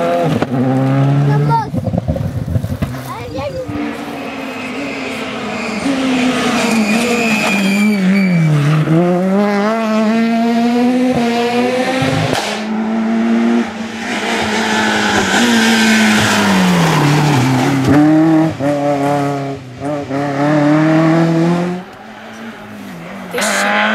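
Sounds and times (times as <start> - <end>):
rally car engines at high revs: 0.0 - 23.9
tyre squeal: 3.7 - 8.9.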